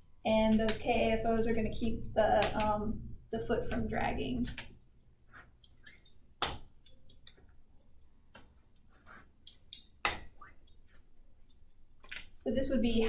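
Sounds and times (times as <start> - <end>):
crutches clicking and tapping: 4.4 - 12.4.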